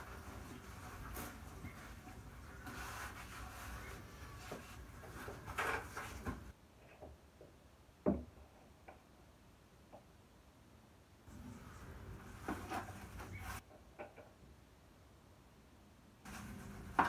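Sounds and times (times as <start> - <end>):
plastic buckets scraping: 0.0 - 6.5, 11.3 - 13.6, 16.3 - 17.0.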